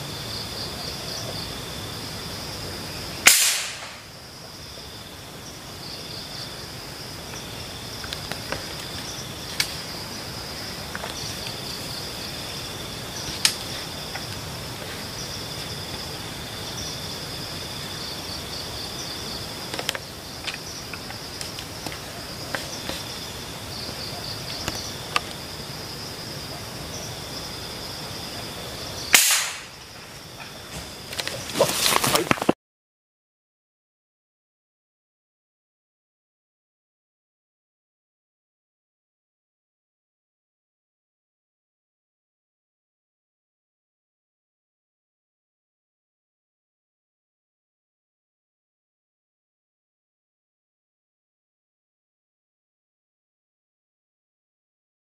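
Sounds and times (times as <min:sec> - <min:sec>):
insects buzzing: 0:00.0 - 0:32.5
rifle shot: 0:03.2 - 0:04.1, 0:29.1 - 0:29.8.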